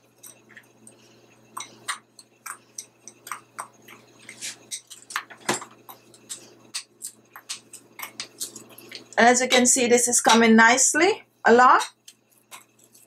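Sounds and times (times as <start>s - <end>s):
spoon scraping gritty mixture: 4.2s - 5.2s, 11.8s - 13.0s.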